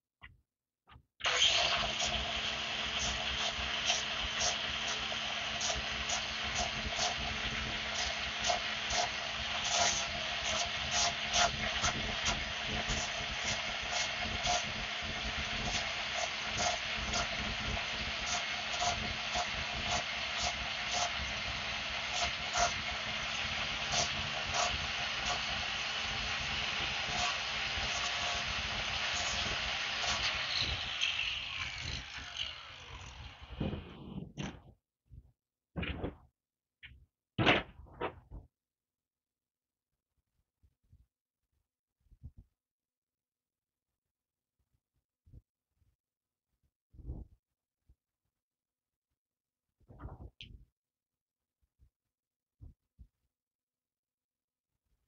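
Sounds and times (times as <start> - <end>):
angle grinder whining: 1.2 - 34.7.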